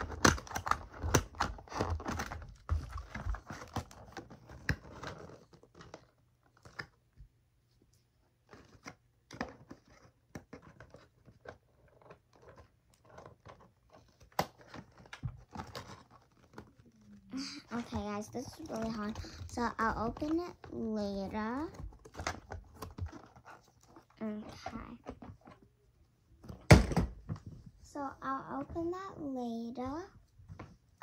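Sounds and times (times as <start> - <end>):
packaging crinkling: 10.6 - 20.4.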